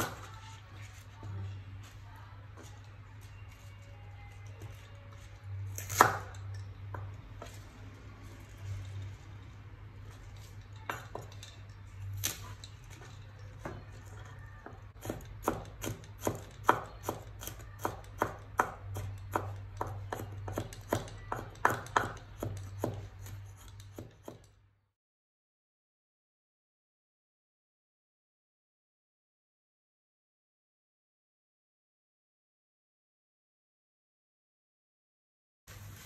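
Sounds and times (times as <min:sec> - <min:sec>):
cleaver chopping on wooden board: 0:15.0 - 0:24.4.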